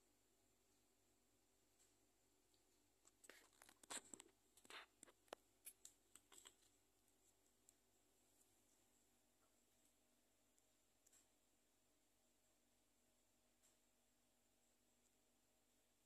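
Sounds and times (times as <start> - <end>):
handling scratches and rustles: 3.1 - 7.4.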